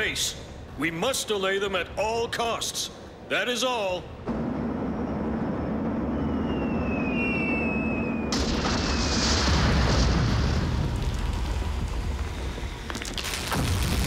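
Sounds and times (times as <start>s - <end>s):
bomber engines droning: 0.0s - 9.3s
heavy rumble of blasts: 4.1s - 14.0s
falling bomb whistles: 4.7s - 10.8s
explosion: 8.2s - 14.0s.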